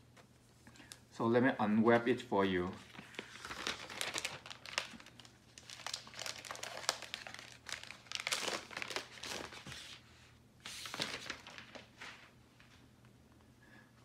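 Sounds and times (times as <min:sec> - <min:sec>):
plastic wrap crinkling: 0:02.8 - 0:10.0, 0:10.6 - 0:12.3.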